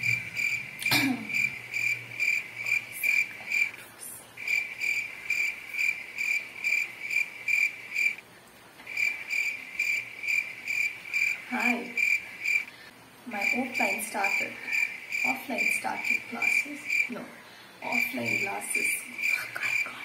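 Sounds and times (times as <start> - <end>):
cricket chirping: 0.0 - 3.7, 4.4 - 8.2, 8.9 - 12.7, 13.4 - 17.1.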